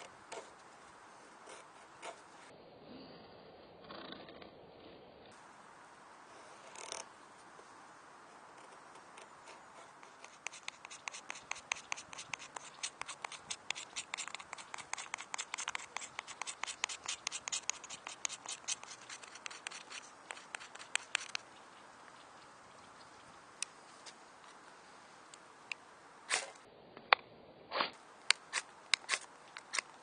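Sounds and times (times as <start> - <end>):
knife scraping ferrocerium rod: 9.2 - 21.5, 28.3 - 29.9.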